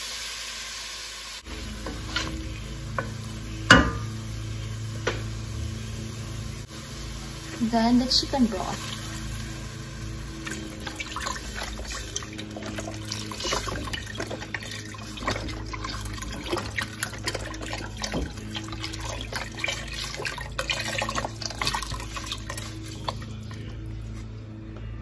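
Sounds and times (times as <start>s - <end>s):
steady low hum: 1.4s - 25.0s
broth pouring and splashing into pot: 6.6s - 23.9s.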